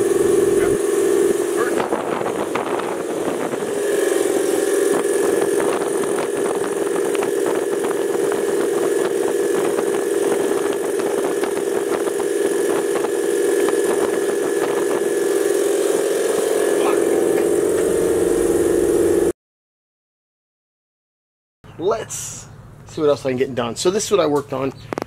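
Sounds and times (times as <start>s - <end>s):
engine hum: 0.0s - 19.3s
rapid engine clatter: 0.0s - 19.3s.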